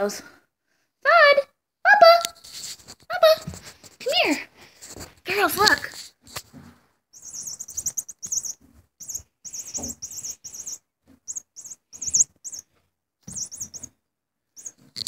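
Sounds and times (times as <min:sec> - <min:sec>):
cat toy rattling: 0:07.2 - 0:12.6, 0:13.3 - 0:13.9.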